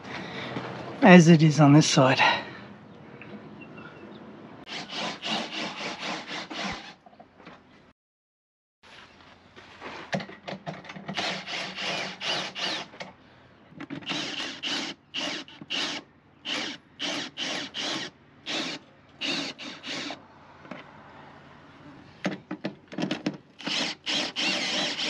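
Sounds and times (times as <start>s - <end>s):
cordless drill short bursts: 4.7s - 7.0s, 11.2s - 12.9s, 14.0s - 20.2s, 23.6s - 25.0s.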